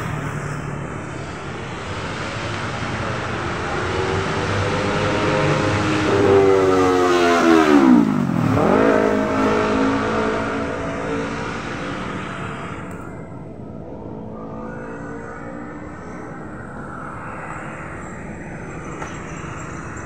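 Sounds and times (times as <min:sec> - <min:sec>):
vehicle engine passing: 0:01.8 - 0:12.9.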